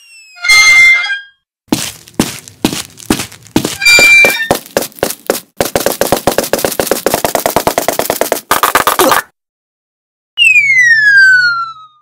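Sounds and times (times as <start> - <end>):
cartoon knocks: 3.8 - 9.3
rapid sharp clicks: 4.5 - 9.2.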